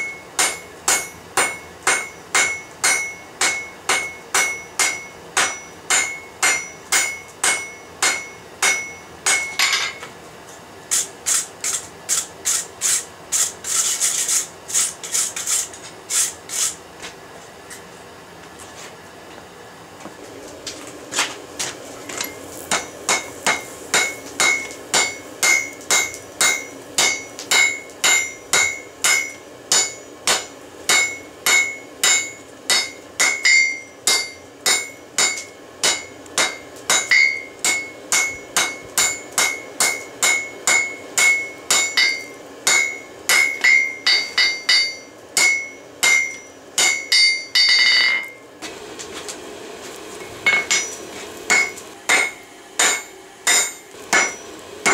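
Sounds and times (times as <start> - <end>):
metallic ringing of anvil: 0.0 - 10.0, 22.2 - 48.4, 50.4 - 54.9
hammer striking metal on anvil: 0.0 - 10.1, 22.2 - 48.4, 50.4 - 54.9.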